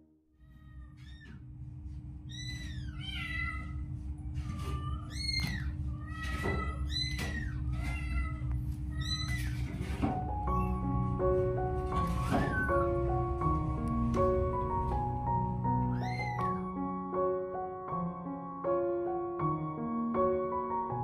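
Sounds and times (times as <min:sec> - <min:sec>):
kittens mewing: 0:02.3 - 0:09.7, 0:15.8 - 0:16.6
low rumble: 0:12.5 - 0:16.3.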